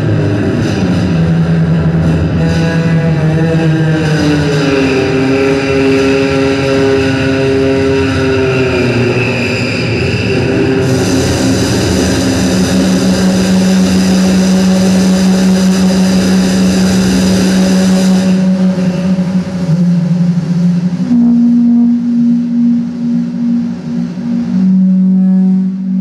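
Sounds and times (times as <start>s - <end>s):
steady low drone: 0.0s - 26.0s
loud dense hiss: 8.9s - 25.9s.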